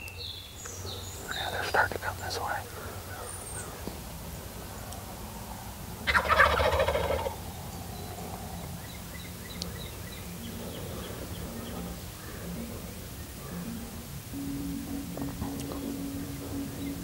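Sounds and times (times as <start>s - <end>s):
turkey gobbling: 6.0s - 8.6s.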